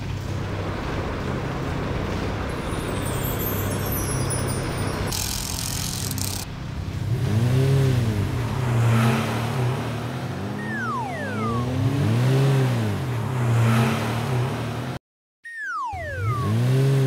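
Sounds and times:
cartoon car engine revving: 7.1 - 17.0.

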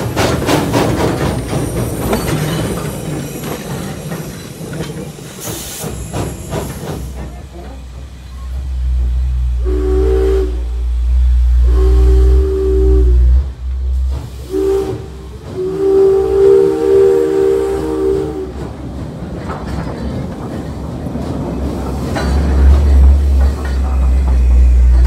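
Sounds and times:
train wheel clicks: 0.0 - 8.8, 18.4 - 25.0
train passing with rumble: 0.0 - 25.0
steam locomotive chime whistle: 9.6 - 13.4, 14.3 - 18.6.

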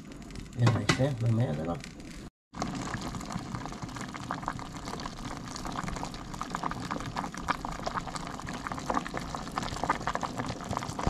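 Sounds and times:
pot of broth boiling: 0.0 - 11.0.

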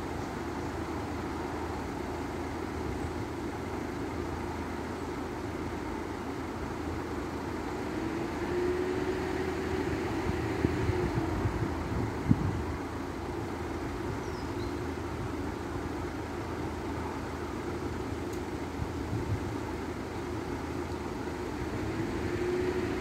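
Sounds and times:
vehicle engines humming: 0.0 - 23.0
rising and falling whine: 7.8 - 12.3.

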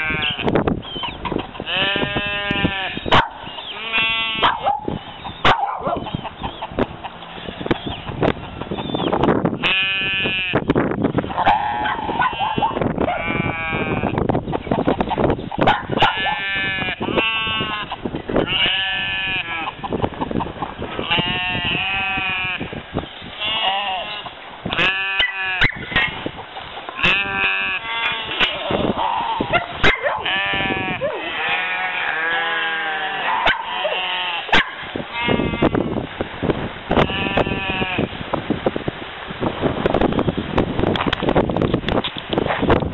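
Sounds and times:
sheep or goats bleating: 0.0 - 0.5, 1.6 - 3.1, 3.7 - 4.6, 9.6 - 10.7, 11.6 - 14.2, 16.1 - 19.9, 21.0 - 22.8, 23.4 - 25.8, 27.0 - 29.5, 30.2 - 36.0, 37.0 - 38.2.

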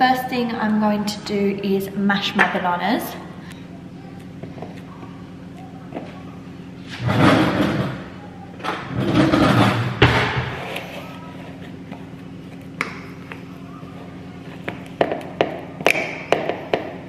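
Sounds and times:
bananas being mashed: 8.8 - 17.0.

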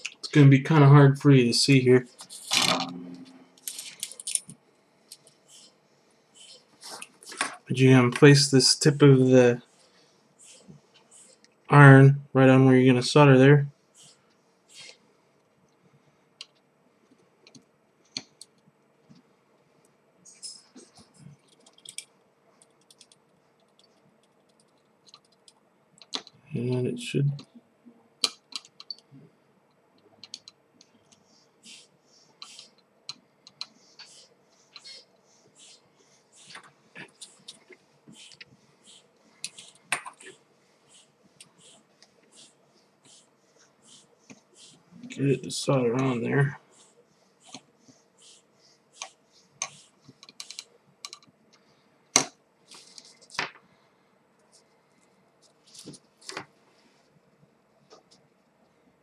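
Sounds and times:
faint steady hum: 0.0 - 59.0
faint clicks and ticks: 16.4 - 26.5, 28.2 - 35.8, 49.0 - 53.7
soft solder hisses: 31.2 - 32.8, 33.7 - 50.6.

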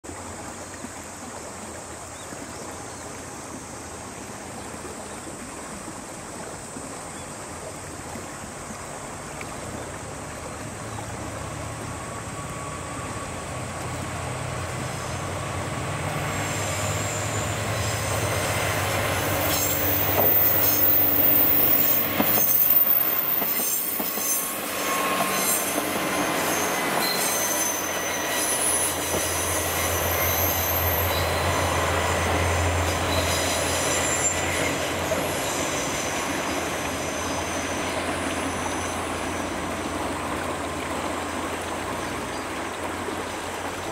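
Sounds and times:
diesel train engines humming: 10.1 - 43.8
rail clatter: 14.2 - 39.2
high-pitched wheel squeal: 14.8 - 39.6.

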